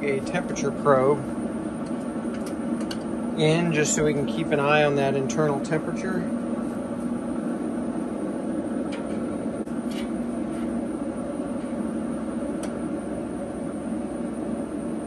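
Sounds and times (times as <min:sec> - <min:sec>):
grill fan humming: 0:00.0 - 0:15.0.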